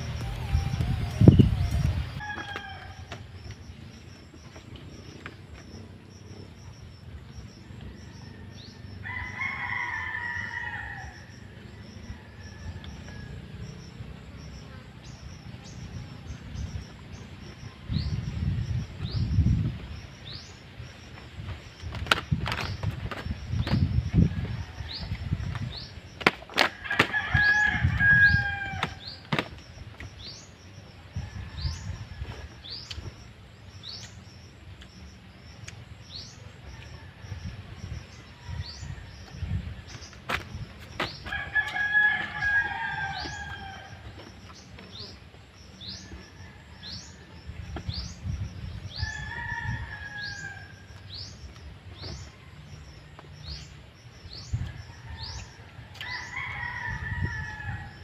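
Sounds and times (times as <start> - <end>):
rooster crowing: 0.0 - 3.4, 7.9 - 13.5, 26.7 - 29.2, 41.2 - 44.2, 48.9 - 51.0, 54.7 - 58.0.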